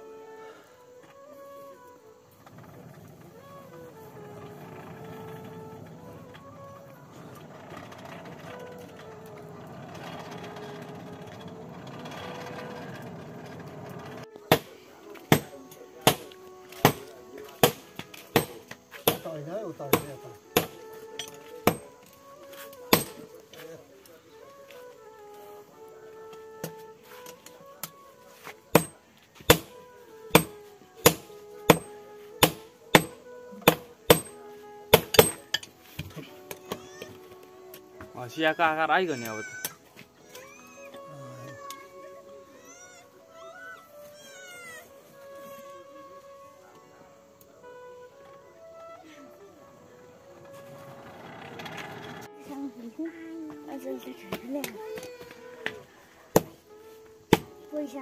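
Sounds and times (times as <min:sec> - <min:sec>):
hand-cranked forge blower whirring: 0:02.3 - 0:25.3, 0:28.7 - 0:38.6, 0:50.4 - 0:52.6
sledgehammer striking iron on anvil: 0:14.5 - 0:14.7, 0:15.3 - 0:19.3, 0:19.9 - 0:21.9, 0:22.9 - 0:23.2, 0:28.8 - 0:29.7, 0:30.4 - 0:34.4, 0:35.0 - 0:35.6.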